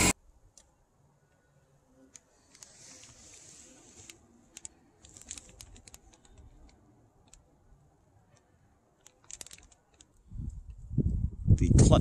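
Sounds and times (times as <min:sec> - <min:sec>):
sharp crackles of packaging: 0:02.4 - 0:07.5, 0:09.0 - 0:10.2
plastic bags rustling: 0:02.6 - 0:06.5, 0:09.2 - 0:10.1.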